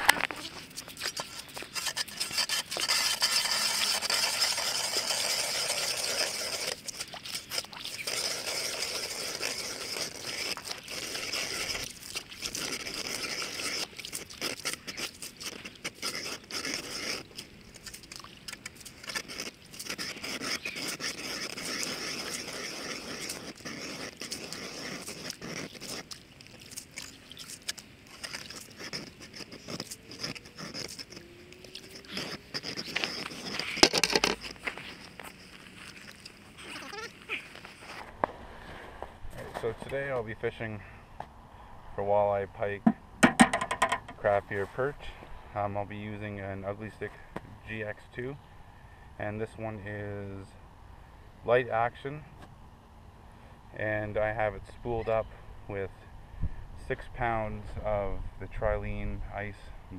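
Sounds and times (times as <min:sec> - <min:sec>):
ice auger scraping ice: 0:00.0 - 0:38.1.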